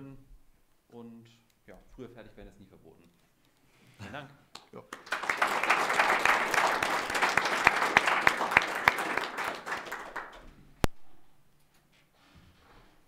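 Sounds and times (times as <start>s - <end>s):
audience applauding: 4.9s - 10.5s.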